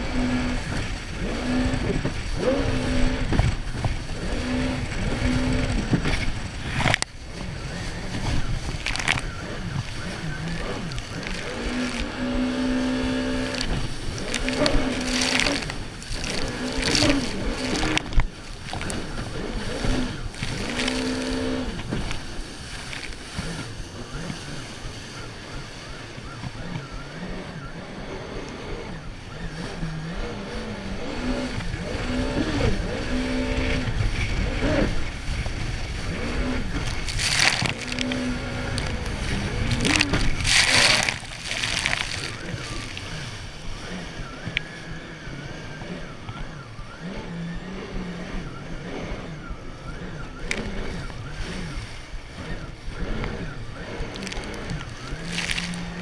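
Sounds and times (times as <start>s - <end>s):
jet ski engine: 0.0s - 56.0s
water slapping against hull: 1.8s - 25.0s, 34.3s - 43.8s, 54.0s - 56.0s
water jet rushing: 4.8s - 23.8s.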